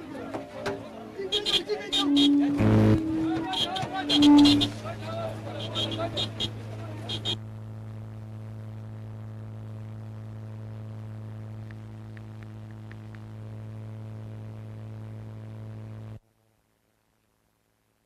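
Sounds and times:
low buzzy hum: 1.3s - 18.0s
faint ticks: 11.6s - 13.4s.

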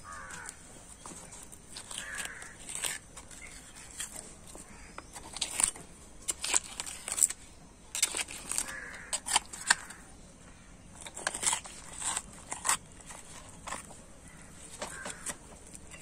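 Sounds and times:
crow cawing: 0.0s - 0.6s, 1.8s - 2.6s, 4.7s - 5.1s, 8.5s - 10.7s, 14.3s - 15.4s
knife crunching through bone: 0.0s - 10.1s, 10.9s - 16.0s.

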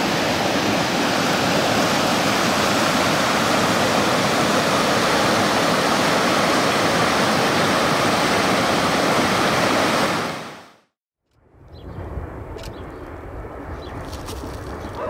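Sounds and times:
river water rushing: 0.0s - 10.8s.

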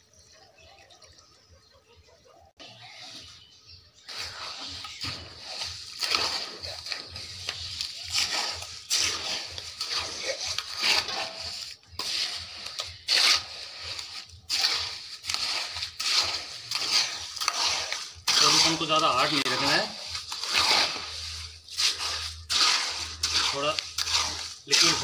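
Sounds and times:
trowel scraping wet concrete: 2.6s - 25.0s.

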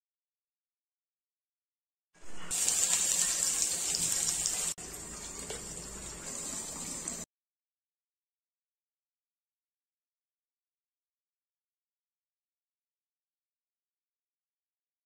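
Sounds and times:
vegetables sizzling in hot oil: 2.5s - 7.2s.

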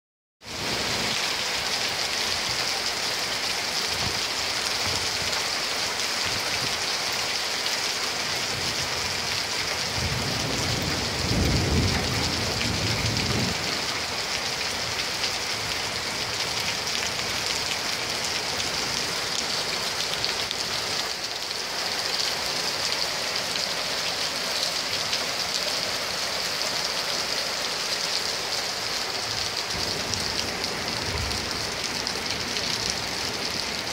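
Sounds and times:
heavy rain on tarmac and cars: 0.4s - 33.9s
low rumble of thunder: 9.9s - 14.0s.

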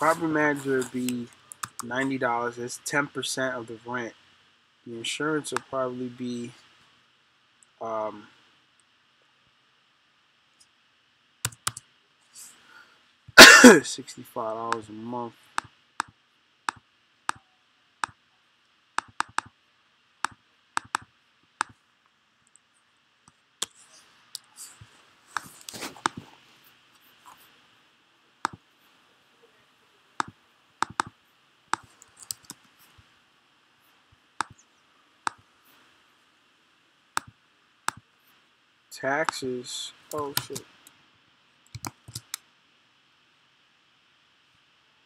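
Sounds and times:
computer mouse clicks: 1.0s - 1.9s, 11.4s - 11.9s, 15.6s - 17.4s, 19.0s - 19.5s, 20.2s - 21.8s, 25.3s - 26.2s, 30.2s - 31.1s, 31.7s - 33.0s, 34.4s - 34.6s, 40.1s - 40.7s, 41.6s - 42.4s.

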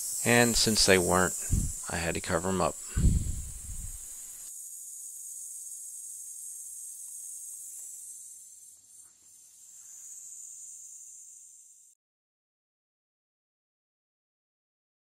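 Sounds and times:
insects shrilling: 0.0s - 12.0s.

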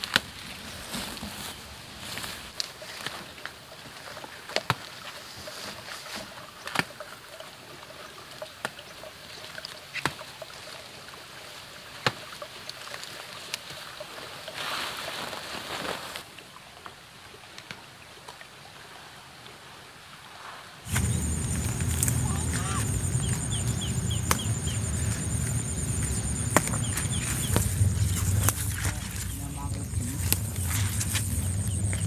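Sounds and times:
leaf stalks snapping: 20.9s - 32.0s
weeds rustling: 20.9s - 32.0s.

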